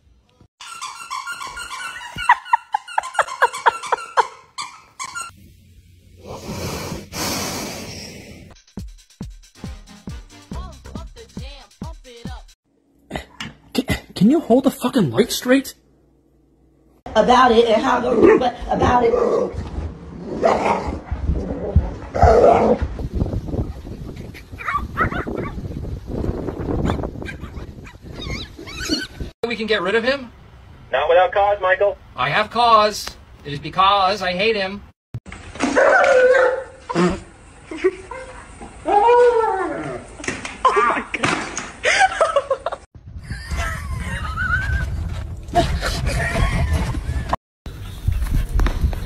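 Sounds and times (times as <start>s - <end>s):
dog barking and yipping: 0.6s - 5.4s, 22.1s - 22.8s, 24.6s - 25.6s, 26.9s - 29.1s, 35.6s - 36.9s
breathy exhaling: 6.2s - 8.6s
dog whining: 27.3s - 29.2s.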